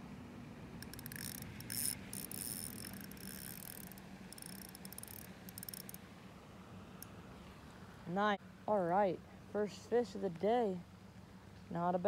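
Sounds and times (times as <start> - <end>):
fishing reel clicking: 0.8 - 6.0.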